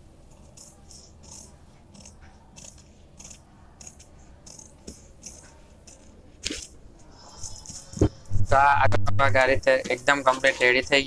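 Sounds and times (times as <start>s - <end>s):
scissors snipping paper: 0.5s - 6.7s.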